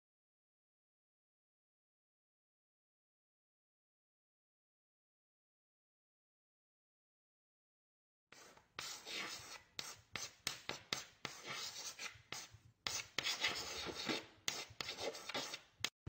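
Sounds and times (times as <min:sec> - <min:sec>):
chalk scratching on blackboard: 0:08.4 - 0:16.0.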